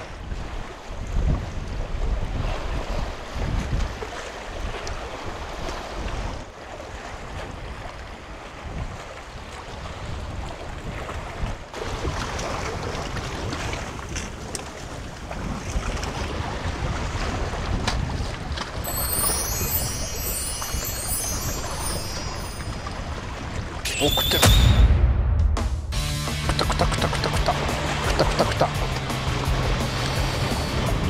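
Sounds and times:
wind buffeting microphone: 0.0 - 23.9
waves washing against shore: 26.5 - 31.0.

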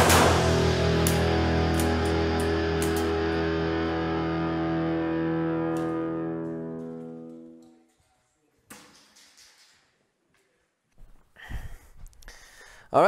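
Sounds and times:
guitar chord: 0.0 - 7.6.

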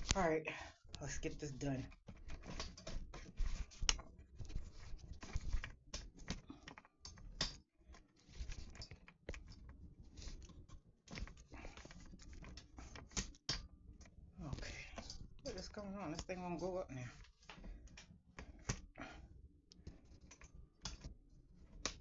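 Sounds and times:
phone and stand being handled: 1.0 - 22.0.

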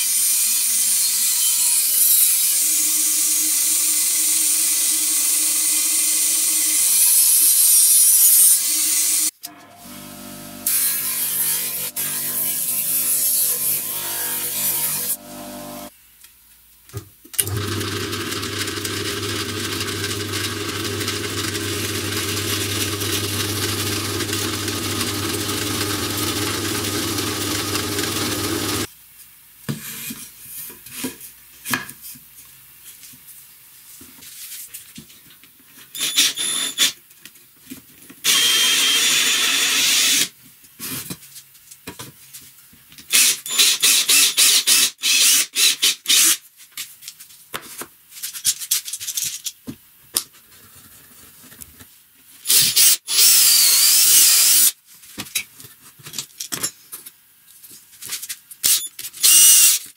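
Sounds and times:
cordless drill running: 17.4 - 28.9, 38.2 - 40.3, 52.5 - 54.7, 58.6 - 59.8
drill press humming: 17.4 - 28.9.

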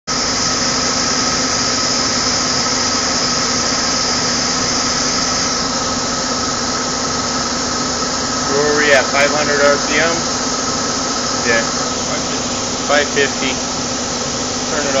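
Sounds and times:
lathe spindle whining: 0.1 - 15.0.

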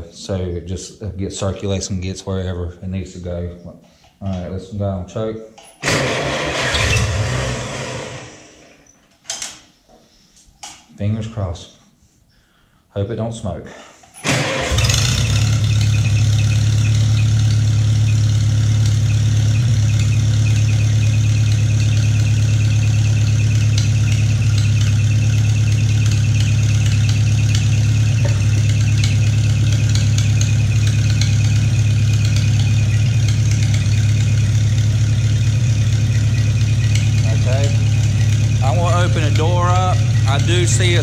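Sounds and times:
engine running steadily: 14.3 - 41.0.

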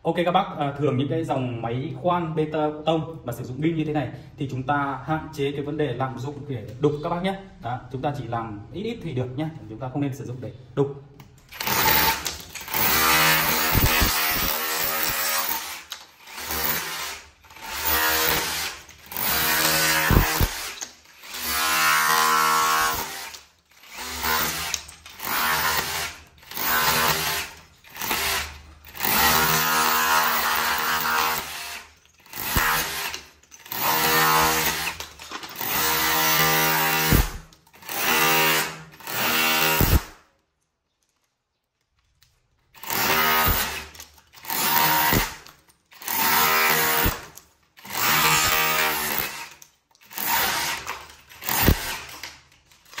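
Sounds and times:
rotary hammer chiselling brick wall: 11.5 - 40.2, 42.7 - 53.0.

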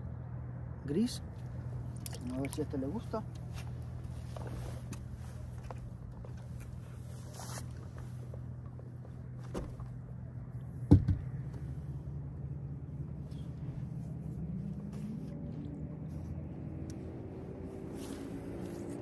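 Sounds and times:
knock on boat: 10.9 - 11.3.

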